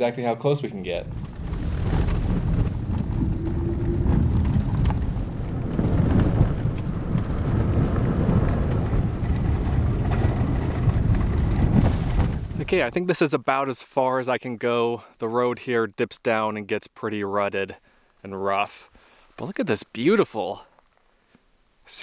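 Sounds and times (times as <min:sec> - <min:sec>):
tyres and engine rumbling: 0:00.6 - 0:13.0
small ticks and rattles: 0:00.9 - 0:12.6.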